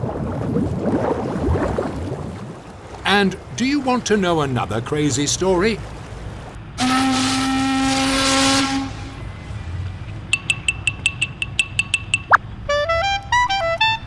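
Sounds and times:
ship's horn blast: 6.8 - 9.4, 12.5 - 14.0.

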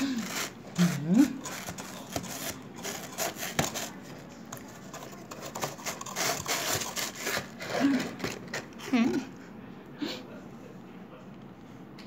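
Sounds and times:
cardboard box rustling and scraping: 0.0 - 4.2, 4.8 - 8.7.

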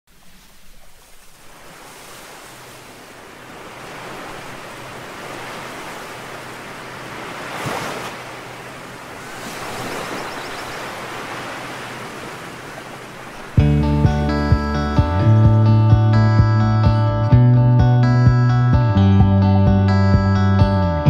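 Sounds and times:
waves breaking on sandy beach: 0.1 - 13.7.

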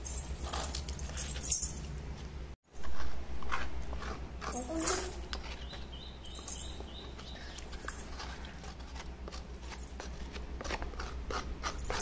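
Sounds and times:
spoon scraping coconut flesh: 2.8 - 12.0.

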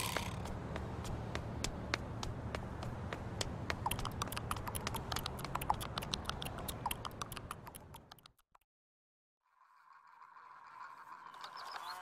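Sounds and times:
rapid irregular clicking and tapping: 0.4 - 8.4.

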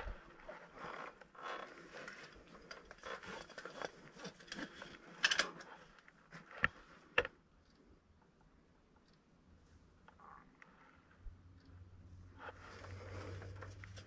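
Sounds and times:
rustling of rope gear: 0.0 - 7.2, 12.4 - 14.0.

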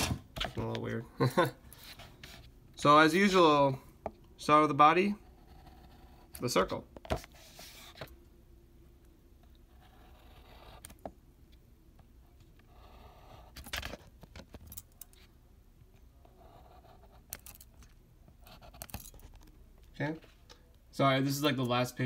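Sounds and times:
pen scratching on paper: 5.2 - 6.3, 9.7 - 11.0, 12.7 - 13.6, 16.2 - 17.4, 18.4 - 18.8.

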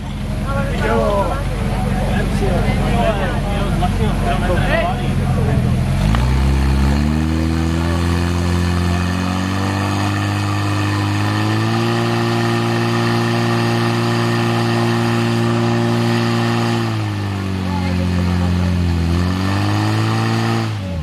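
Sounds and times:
pump engine running hard: 0.0 - 21.0.

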